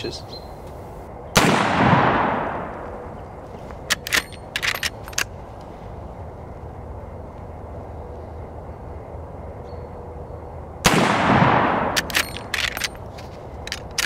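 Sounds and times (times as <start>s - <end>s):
rifle shot: 1.3s - 2.8s, 10.8s - 12.8s
metallic clacks of rifle lever: 3.9s - 5.3s, 12.0s - 14.0s.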